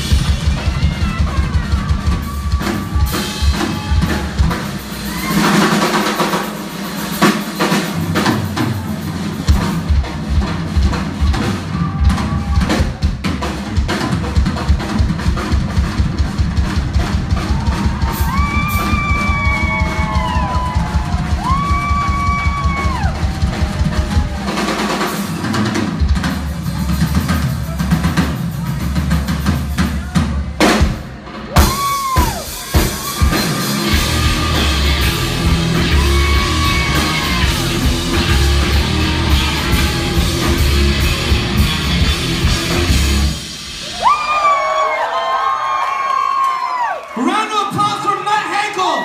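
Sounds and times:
rock drum kit solo: 0:00.0 - 0:45.0
crowd whooping: 0:00.1 - 0:06.4, 0:11.2 - 0:13.1, 0:16.9 - 0:25.6, 0:29.8 - 0:49.0.

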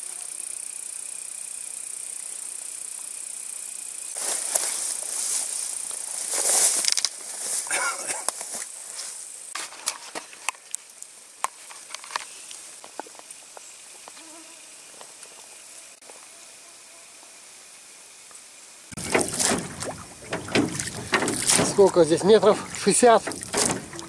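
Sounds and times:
faint high hiss: 0:00.0 - 0:20.9
leaves rustling and snapping: 0:04.2 - 0:08.7, 0:19.0 - 0:24.0.

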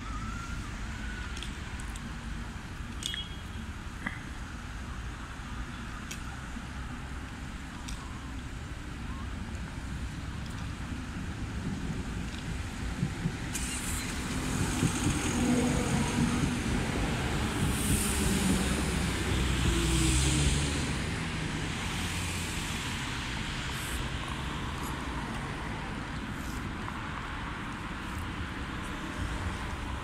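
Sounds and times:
standing tram hum: 0:00.0 - 0:30.0
tram drive whine: 0:03.6 - 0:30.0
tram wheels on rails: 0:06.9 - 0:30.0.

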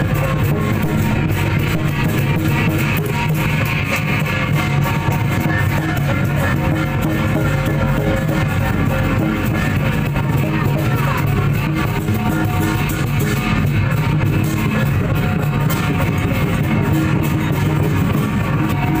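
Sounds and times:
loud music with steady beat: 0:00.0 - 0:14.0.

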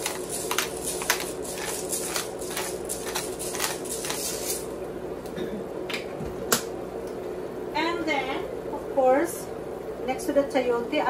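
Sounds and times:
pepper mill grinding: 0:00.0 - 0:04.7
steady low hum: 0:00.0 - 0:11.0.

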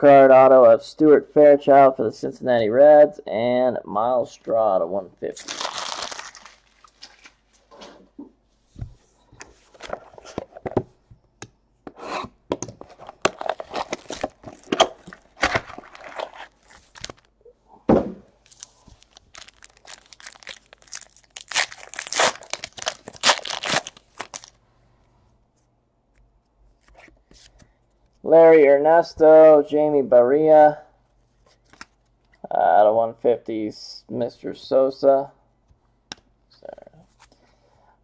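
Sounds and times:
plastic wrapping crinkling and tearing: 0:05.3 - 0:07.5, 0:12.9 - 0:17.3, 0:18.4 - 0:24.6.

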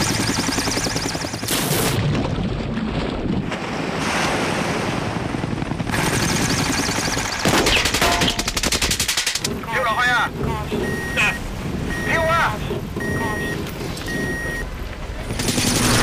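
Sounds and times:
helicopter rotor downwash: 0:00.0 - 0:01.5, 0:05.1 - 0:07.9, 0:14.9 - 0:16.0
helicopter rotor chop: 0:00.0 - 0:02.0, 0:04.8 - 0:16.0
wind over churned water: 0:02.0 - 0:06.1.

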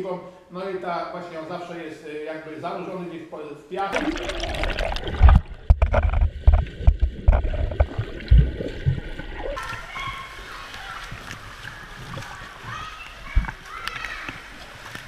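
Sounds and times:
water splashing: 0:03.8 - 0:15.0
muffled underwater thumps: 0:04.0 - 0:09.6.

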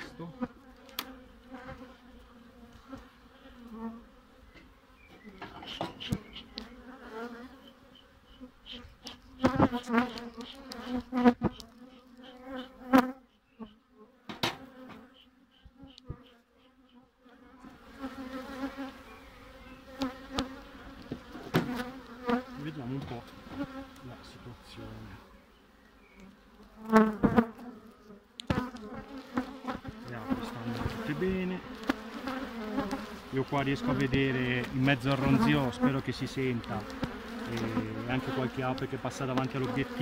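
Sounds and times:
honeybees buzzing: 0:00.0 - 0:40.0
knocks and clicks from hive handling: 0:04.6 - 0:06.7, 0:14.3 - 0:15.1, 0:20.3 - 0:22.4, 0:28.4 - 0:29.0, 0:36.6 - 0:37.7.

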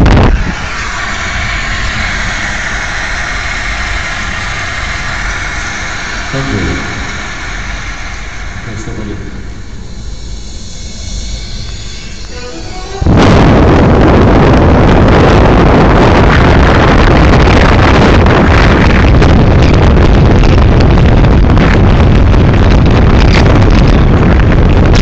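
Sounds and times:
wind and road noise of car: 0:00.0 - 0:01.0, 0:13.2 - 0:25.0.

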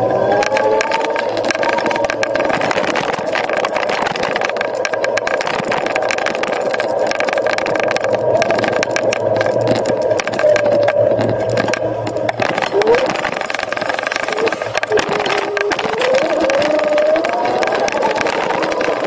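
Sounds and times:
small clicks and rattles: 0:00.0 - 0:19.0
wind noise: 0:00.0 - 0:19.0
electric motor whining: 0:08.2 - 0:19.0.

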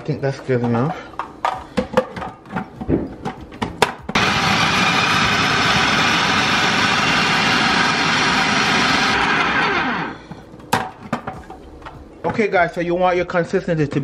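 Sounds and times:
food processor chopping: 0:03.8 - 0:10.2.

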